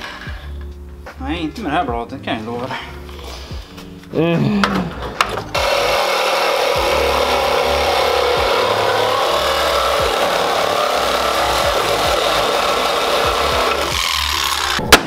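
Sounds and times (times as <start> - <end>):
reciprocating saw cutting metal: 5.6 - 15.0.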